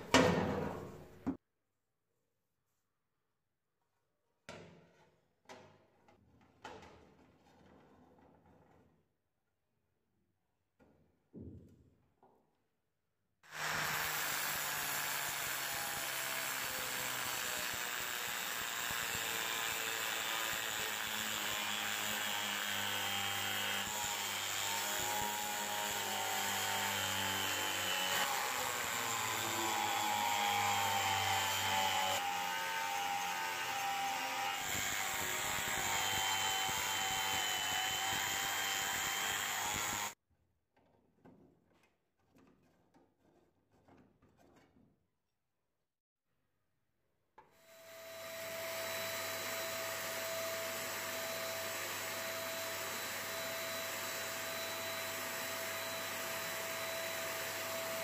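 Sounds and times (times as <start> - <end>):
angle grinder grinding metal: 13.5 - 40.2.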